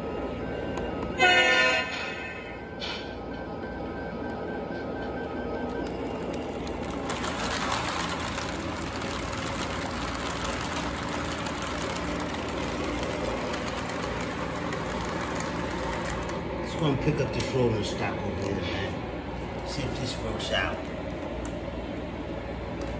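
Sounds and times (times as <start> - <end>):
wheels rattling on rails: 6.1 - 17.6.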